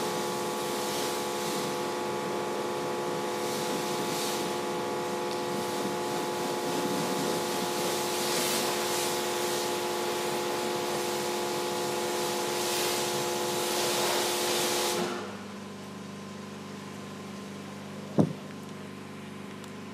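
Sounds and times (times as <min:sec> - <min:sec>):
pressure washer whine: 0:00.0 - 0:19.0
water spray hissing: 0:05.5 - 0:15.1
low steady hum: 0:15.4 - 0:19.9
short thump: 0:18.2 - 0:18.4.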